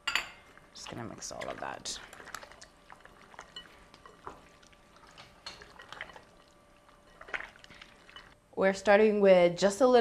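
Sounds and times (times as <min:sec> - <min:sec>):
wet squelches of mixing meat: 0:00.4 - 0:08.4.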